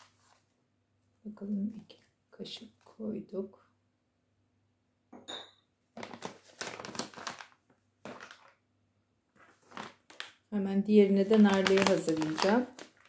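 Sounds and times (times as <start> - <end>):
foil pouch crinkling: 6.0 - 8.6, 9.4 - 13.0.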